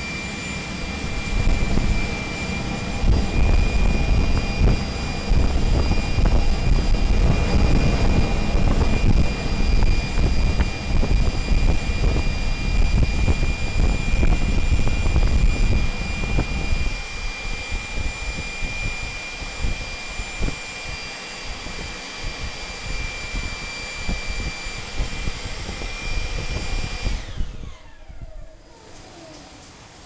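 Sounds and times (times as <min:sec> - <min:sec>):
burner combustion roar: 0:00.0 - 0:30.0
high machine whine: 0:00.0 - 0:30.0
crackling flame: 0:00.9 - 0:20.6.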